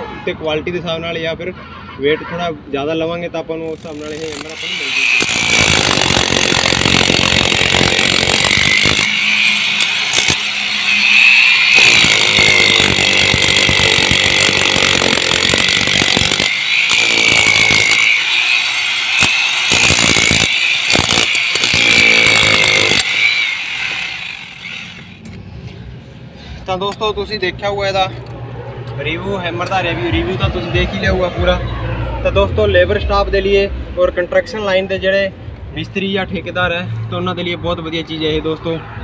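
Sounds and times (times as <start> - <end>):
demolition hammer chiselling brick: 3.8 - 9.1, 11.8 - 18.2, 19.2 - 23.2.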